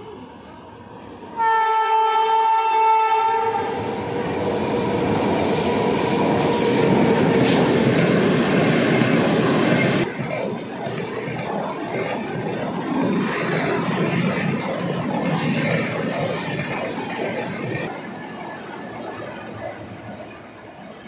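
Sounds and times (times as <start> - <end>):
train horn blast: 1.4 - 3.8.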